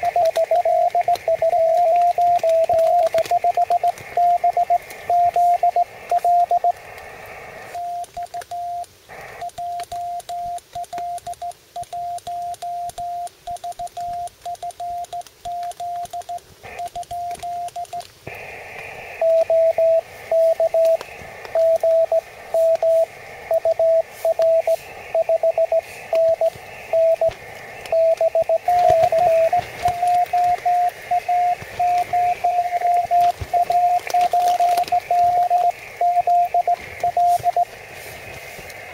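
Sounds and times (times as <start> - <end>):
morse code beeping tone: 0.0 - 6.8, 19.2 - 21.0, 21.6 - 27.3, 27.9 - 37.8
faint receiver hiss: 0.0 - 38.9.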